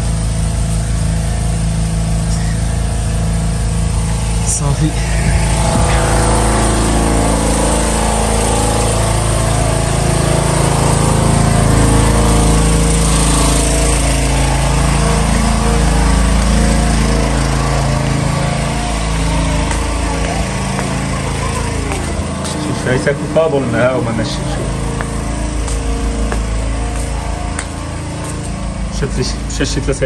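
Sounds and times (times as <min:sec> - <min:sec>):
small motor running: 0:00.0 - 0:30.0.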